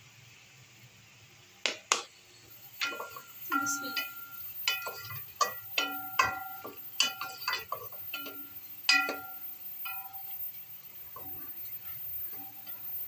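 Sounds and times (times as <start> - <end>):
onions frying in oil: 0.0 - 13.0
spoon clanking in metal pot: 2.8 - 13.0.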